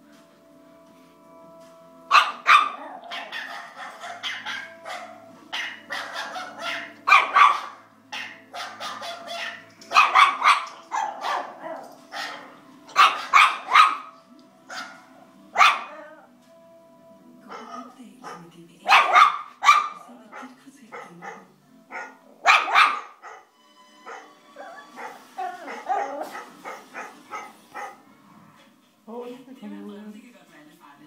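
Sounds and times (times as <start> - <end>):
small dog barking: 2.1 - 16.1, 17.5 - 23.5, 24.1 - 28.0
recorded dog sounds: 2.1 - 16.4, 17.4 - 29.1.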